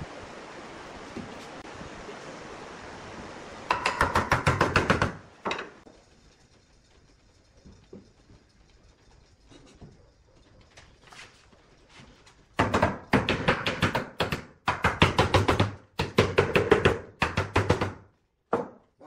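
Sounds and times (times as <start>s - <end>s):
wooden mallet knocking on wood: 3.7s - 5.7s, 12.6s - 18.8s.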